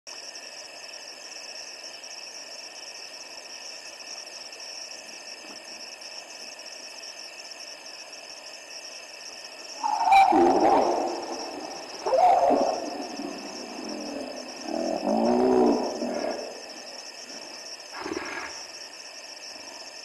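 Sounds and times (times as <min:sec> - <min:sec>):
insects trilling: 0:00.1 - 0:20.0
faint hiss: 0:00.2 - 0:20.0
hippo calling: 0:09.8 - 0:17.0.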